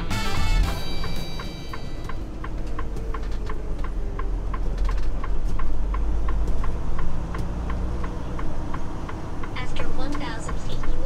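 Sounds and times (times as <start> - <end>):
diesel engine rumble: 0.0 - 11.0
turn signal ticking: 0.7 - 11.0.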